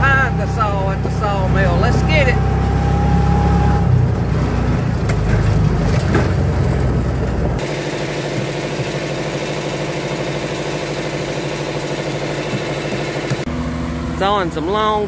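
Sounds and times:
heavy low rumble: 0:00.0 - 0:07.6
engine humming steadily: 0:00.0 - 0:15.0.

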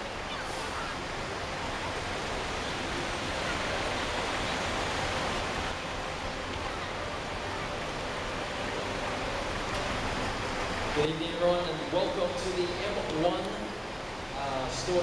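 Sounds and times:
crowd murmur: 0:00.0 - 0:11.0
city traffic noise: 0:00.0 - 0:15.0.

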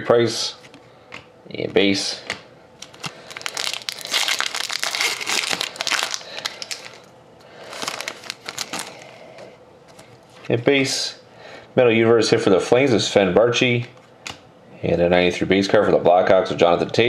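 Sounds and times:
foil wrapper crinkling and tearing: 0:02.8 - 0:09.2.

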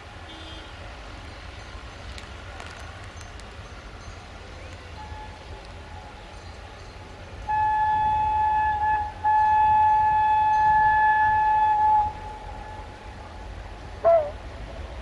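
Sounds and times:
locomotive horn blasts: 0:07.4 - 0:13.0.

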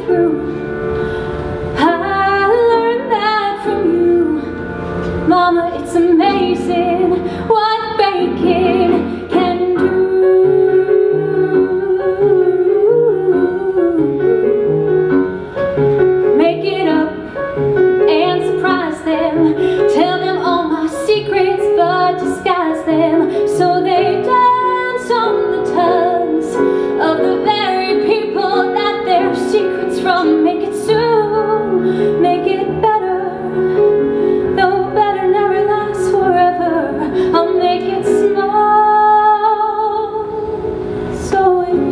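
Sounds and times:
woman singing into a microphone: 0:00.0 - 0:14.6, 0:16.3 - 0:17.4, 0:18.0 - 0:41.9
grand piano: 0:00.0 - 0:41.9.

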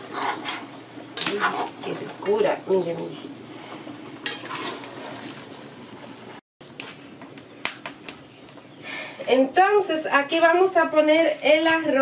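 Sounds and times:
pot boiling and bubbling: 0:00.0 - 0:12.0.

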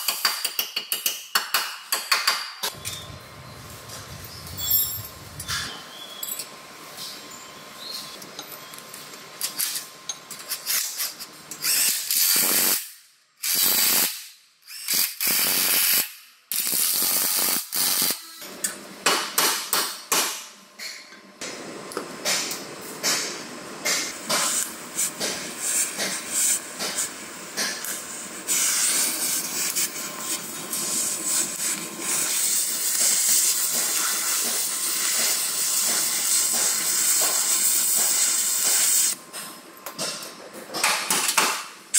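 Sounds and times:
cutting torch hissing: 0:27.8 - 0:39.2.

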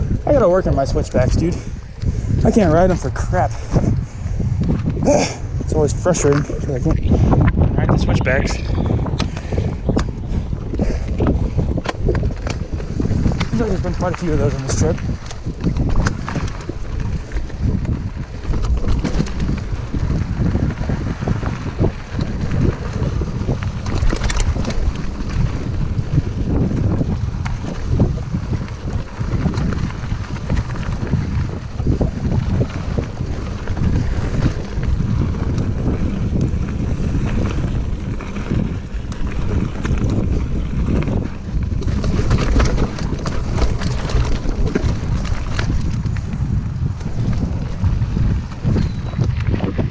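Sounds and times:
bike knocking and rattling: 0:00.0 - 0:49.9
bike tyres rumbling on dirt: 0:00.0 - 0:49.9
wind buffeting microphone: 0:00.0 - 0:49.9.

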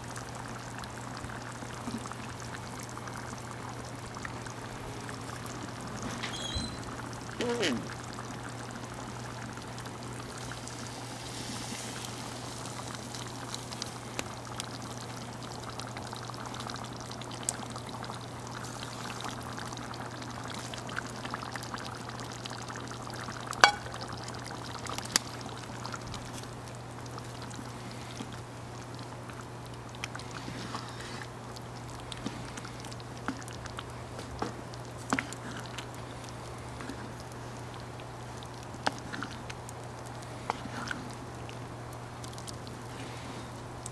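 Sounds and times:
curry bubbling in a pot: 0:00.0 - 0:43.9
wood fire pops and crackles: 0:09.7 - 0:43.0.

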